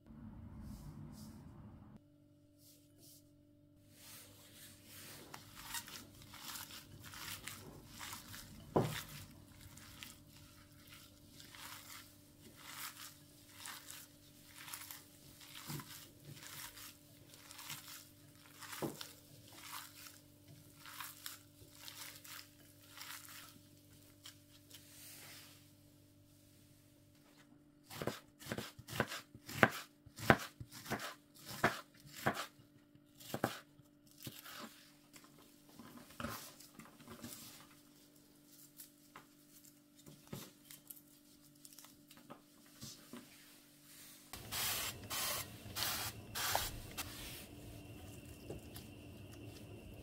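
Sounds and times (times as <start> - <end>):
wet squishing of kneaded meat: 4.5 - 25.0, 33.9 - 43.0.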